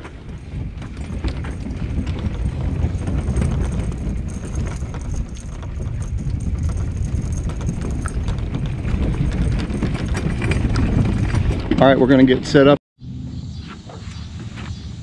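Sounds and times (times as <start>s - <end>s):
footsteps on wooden planks: 0.0s - 12.2s
wind rumble on microphone: 0.0s - 15.0s.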